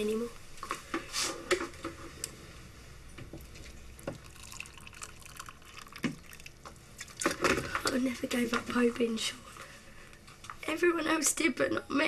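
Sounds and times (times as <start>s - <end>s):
faint trickling liquid: 3.9s - 7.9s.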